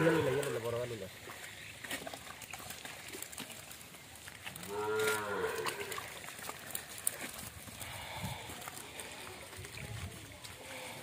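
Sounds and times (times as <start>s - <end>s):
cow mooing: 0.0s - 0.6s, 4.6s - 6.0s
faint clicks and rustling: 1.3s - 11.0s.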